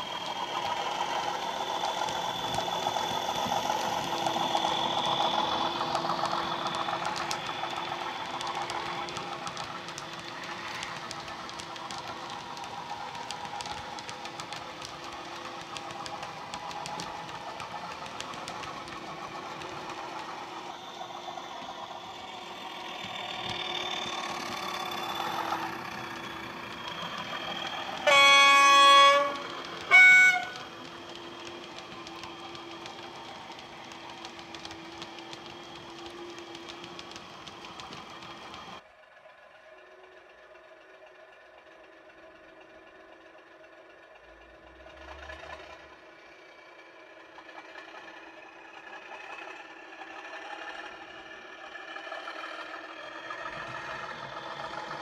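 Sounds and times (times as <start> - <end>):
model diesel engine sound: 0.0 - 38.8, 39.6 - 55.0
train horn blasts: 27.7 - 30.8.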